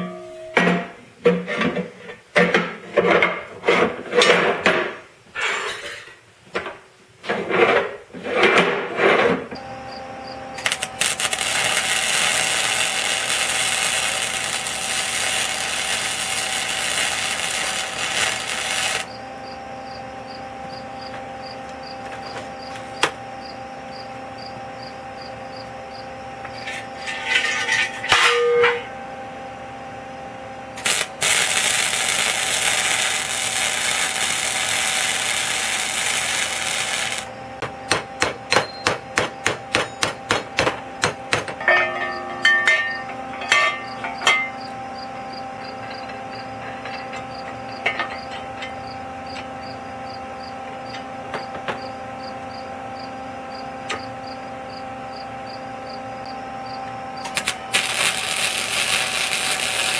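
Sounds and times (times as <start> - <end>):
steady hum: 4.6 - 59.9
welding arc crackling and hissing: 10.6 - 19.2, 30.8 - 37.3, 57.2 - 59.9.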